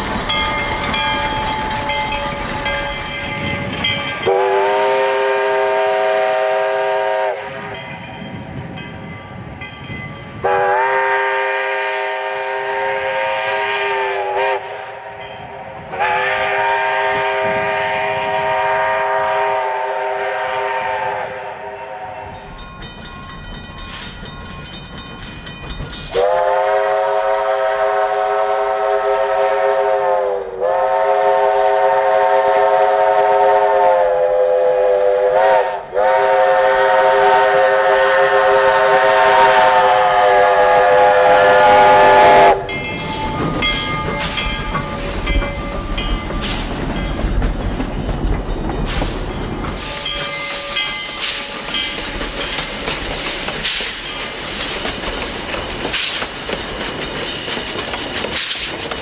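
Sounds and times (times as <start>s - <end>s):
steam whistle blasts: 4.2s - 7.7s, 10.4s - 15.2s, 15.9s - 22.4s, 26.1s - 43.4s, 49.8s - 51.7s.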